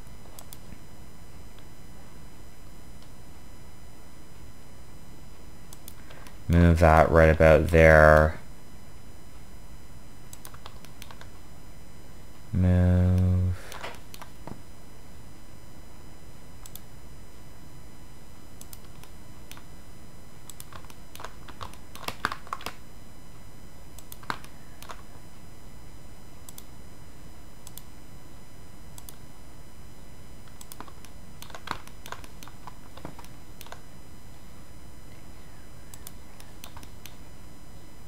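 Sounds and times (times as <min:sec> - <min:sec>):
faint hum and hiss: 0:00.0 - 0:38.0
keyboard and mouse clicks: 0:00.3 - 0:00.8, 0:10.3 - 0:11.3, 0:13.7 - 0:14.6, 0:20.5 - 0:22.8, 0:24.0 - 0:25.0, 0:29.0 - 0:29.2, 0:30.4 - 0:33.8, 0:35.9 - 0:37.2.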